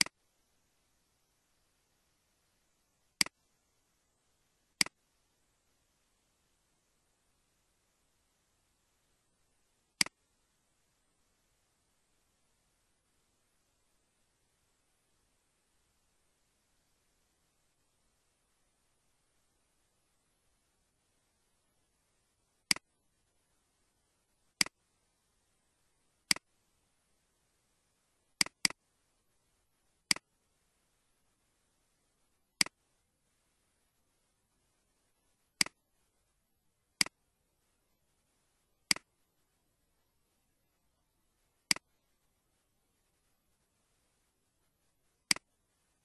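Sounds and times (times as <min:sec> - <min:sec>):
computer mouse clicks: 0:03.2 - 0:03.4, 0:04.8 - 0:05.0, 0:10.0 - 0:10.2, 0:22.7 - 0:22.9, 0:24.6 - 0:24.8, 0:26.3 - 0:26.5, 0:28.4 - 0:28.8, 0:30.1 - 0:30.3, 0:32.6 - 0:32.8, 0:35.6 - 0:35.8, 0:38.9 - 0:39.1, 0:41.7 - 0:41.9, 0:45.3 - 0:45.5.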